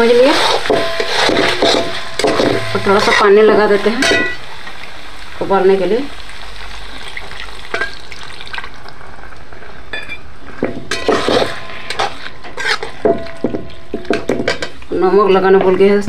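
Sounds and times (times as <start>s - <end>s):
steel spatula scraping pan: 0.0s - 4.5s, 9.5s - 14.8s
curry sizzling in a pan: 0.0s - 16.0s.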